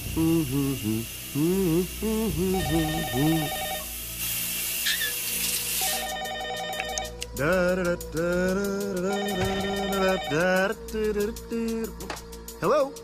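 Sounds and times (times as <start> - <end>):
man singing wordlessly: 0.0 - 3.8, 7.3 - 13.0
shower spray hissing: 0.0 - 6.1
telephone trilling: 2.5 - 3.9, 5.8 - 7.2, 9.1 - 10.4.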